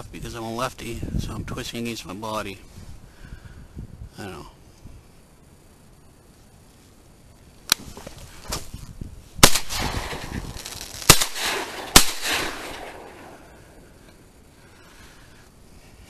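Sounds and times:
rustling: 0:06.2 - 0:14.2
shotgun shots with echo: 0:09.4 - 0:10.5, 0:11.1 - 0:13.5
sharp snap: 0:11.1 - 0:13.1.

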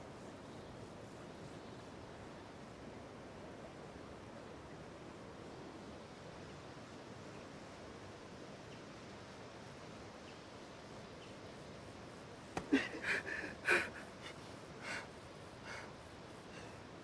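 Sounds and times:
man huffing breaths and snorts: 0:12.6 - 0:16.8.

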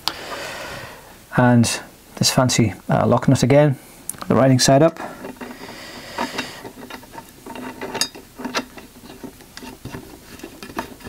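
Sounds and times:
small metallic clicks and rubbing: 0:04.1 - 0:11.0.

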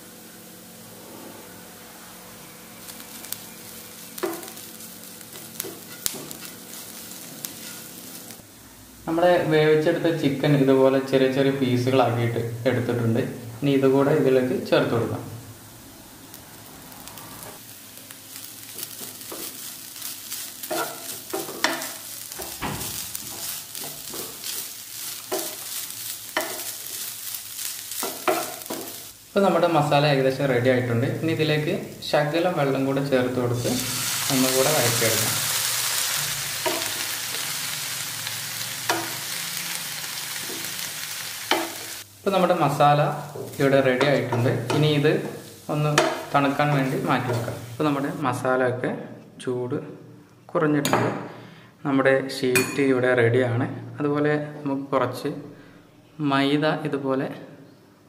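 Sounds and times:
vegetables sizzling in oil: 0:00.0 - 0:10.7, 0:14.0 - 0:48.4
wooden spatula scraping pan: 0:20.6 - 0:27.0.

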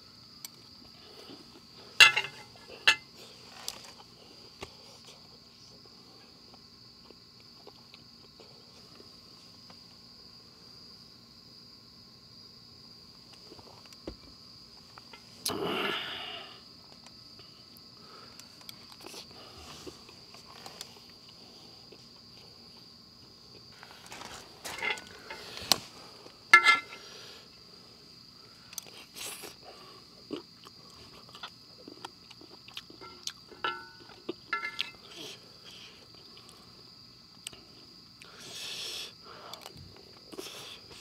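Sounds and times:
night insects chorus: 0:00.0 - 0:41.0
metal spoon clinking on a pan: 0:33.0 - 0:35.0.

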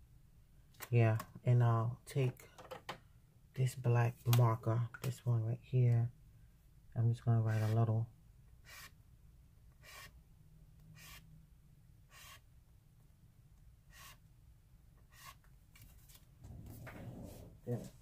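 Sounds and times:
marker scratching on paper: 0:07.5 - 0:07.8, 0:08.6 - 0:09.0, 0:09.8 - 0:10.2, 0:11.0 - 0:11.2, 0:12.1 - 0:12.4, 0:13.9 - 0:14.2, 0:15.0 - 0:15.4.

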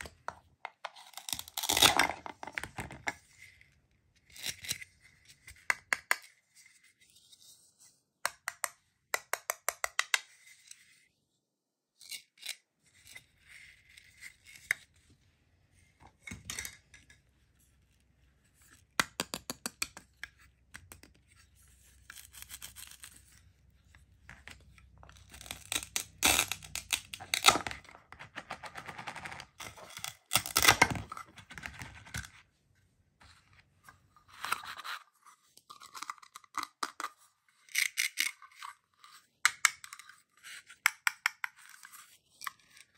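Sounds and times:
plastic pieces clicking: 0:25.2 - 0:27.8.

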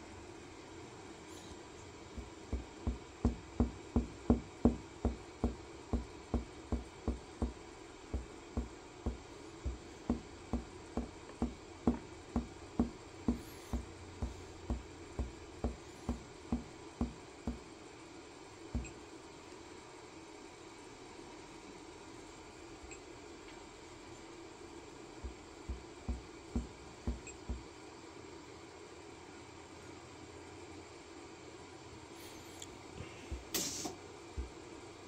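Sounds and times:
fingertip tapping on touchscreen: 0:02.2 - 0:17.6, 0:18.8 - 0:19.0.

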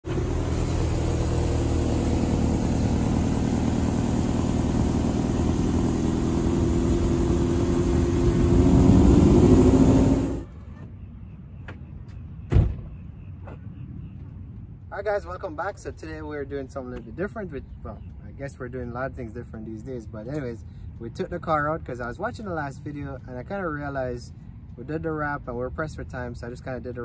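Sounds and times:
car engine running and revving: 0:00.0 - 0:10.5
thump: 0:12.5 - 0:13.6.

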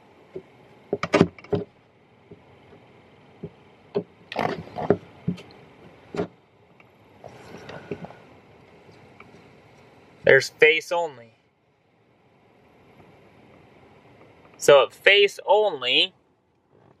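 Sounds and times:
low steady blower: 0:00.0 - 0:17.0.

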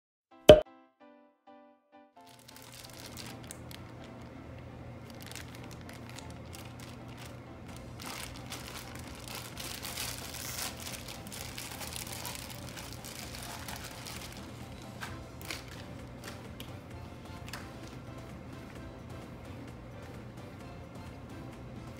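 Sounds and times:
plastic bag crinkling: 0:02.2 - 0:04.3, 0:05.0 - 0:16.4.

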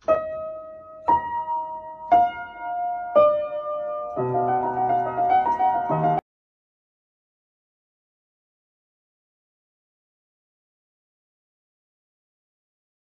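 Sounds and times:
slow solo piano: 0:00.0 - 0:06.2.

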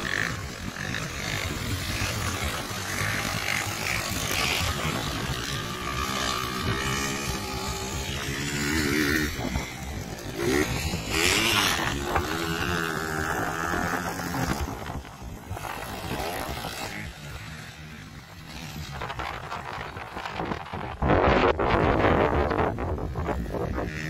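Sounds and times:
dirt bike engines revving: 0:00.0 - 0:24.0.

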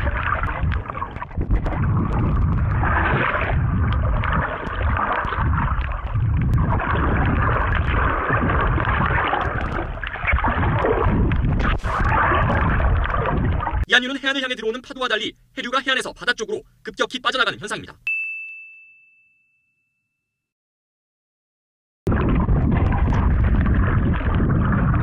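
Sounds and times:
water churning and splashing: 0:00.0 - 0:13.9, 0:22.1 - 0:25.0.

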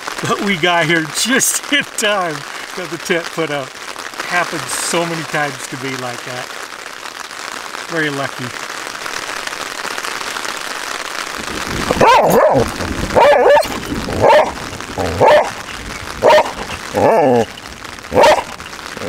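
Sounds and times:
rain hissing on a tent: 0:00.0 - 0:19.0
dog barking: 0:11.9 - 0:15.6, 0:16.2 - 0:17.5, 0:18.1 - 0:18.6.

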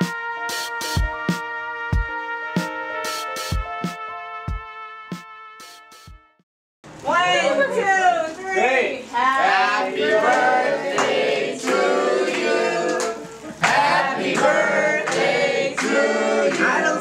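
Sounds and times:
group singing in chorus: 0:09.2 - 0:17.0.

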